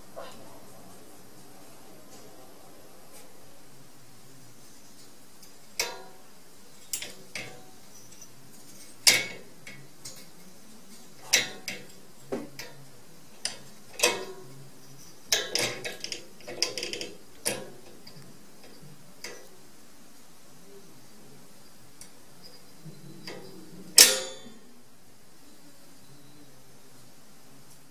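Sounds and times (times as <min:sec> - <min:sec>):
cage latch clicking and rattling: 0:15.3 - 0:18.2.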